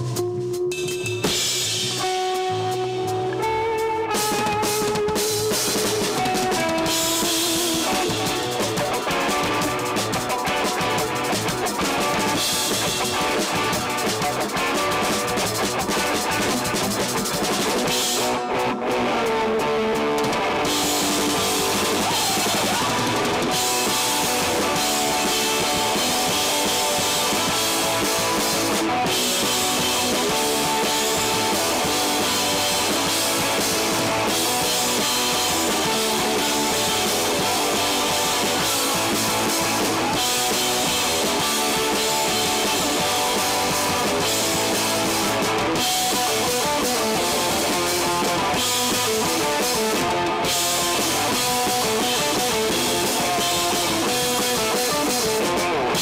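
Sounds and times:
cymbals: 0.0s - 8.6s
bass guitar: 0.0s - 56.0s
drum kit: 0.0s - 56.0s
electric guitars: 0.0s - 56.0s.

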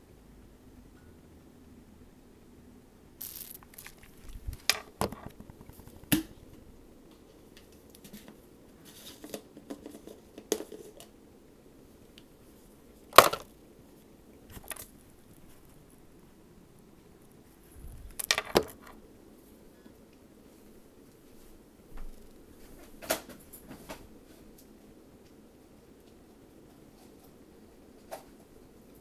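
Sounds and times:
rustling: 3.2s - 11.0s.

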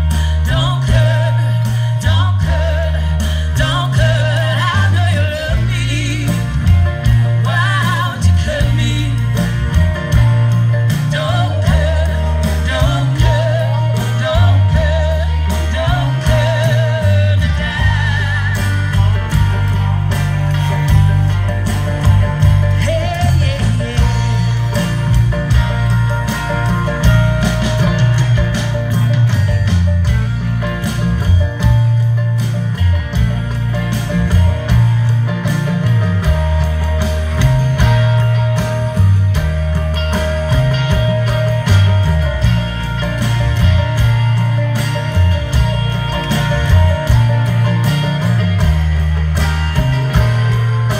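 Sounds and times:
singer with vibrato: 0.0s - 9.7s
bass line: 0.0s - 50.9s
live band music through pa: 0.0s - 50.9s
strummed guitar: 0.0s - 50.9s.

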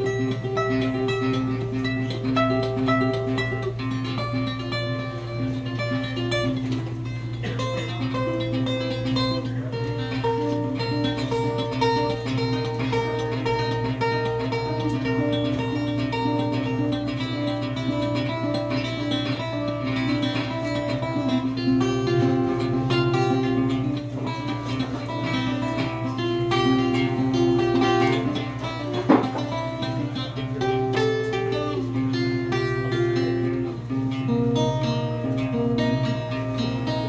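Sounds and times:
hollow-body guitar picking: 0.0s - 37.0s
sharp knock: 29.1s - 29.5s.

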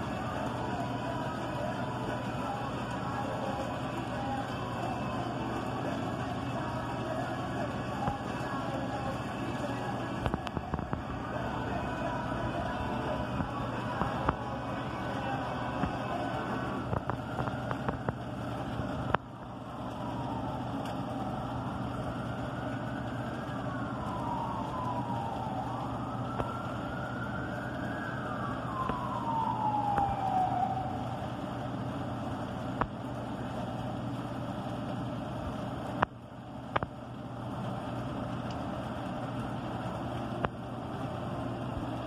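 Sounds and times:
siren wailing: 0.0s - 32.8s.

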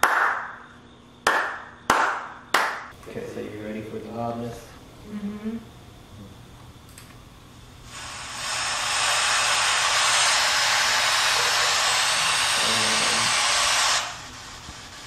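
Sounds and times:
radio static hiss: 7.8s - 15.0s.

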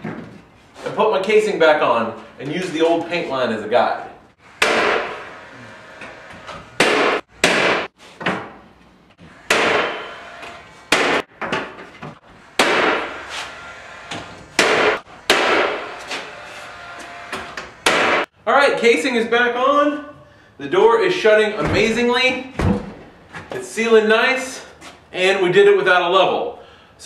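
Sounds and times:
pneumatic nailer shots: 4.5s - 5.3s, 6.0s - 8.3s, 9.2s - 11.7s, 12.5s - 16.3s, 17.3s - 18.3s.

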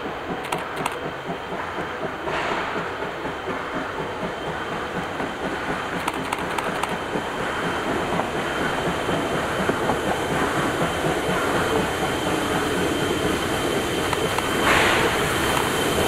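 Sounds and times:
train wheels rumbling on rail: 0.0s - 16.0s
clicks over rail joints: 5.9s - 7.0s.

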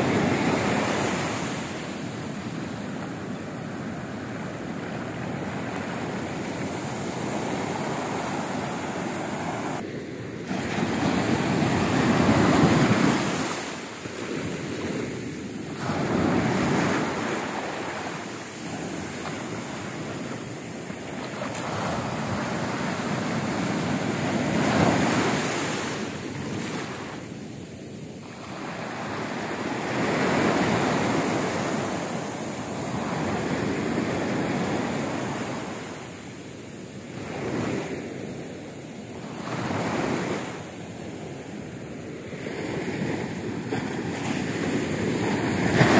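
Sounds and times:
waves breaking: 0.0s - 27.3s, 42.4s - 45.9s.

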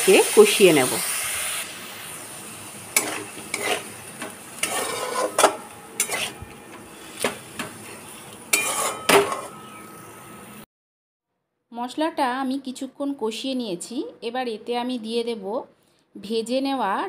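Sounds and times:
faint sizzle: 0.0s - 10.6s
metal spatula scraping metal pan: 2.9s - 9.9s.

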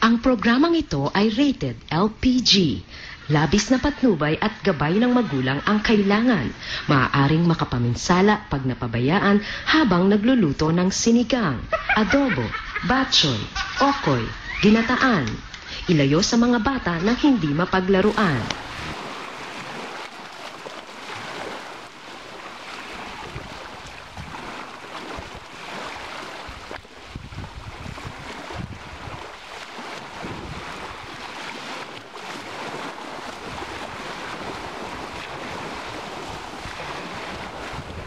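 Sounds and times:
small waves washing on rubble shore: 18.0s - 38.0s
wind buffeting microphone: 18.0s - 38.0s.

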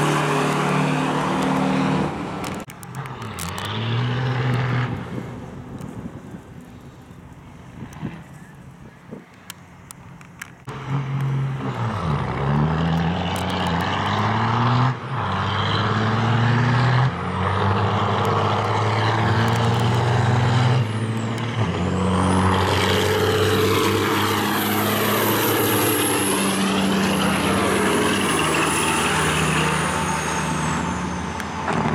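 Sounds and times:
diesel truck engines revving: 0.0s - 31.9s.

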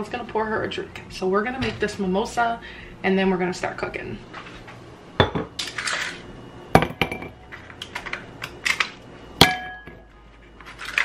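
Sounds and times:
glass ringing: 5.2s - 5.5s, 6.8s - 7.4s, 9.4s - 10.1s.

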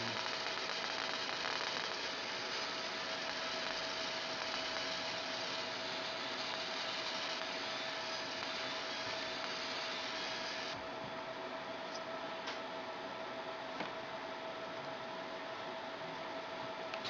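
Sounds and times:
constant mid-pitched tone: 0.0s - 10.8s
laser machine hissing: 0.0s - 10.8s.

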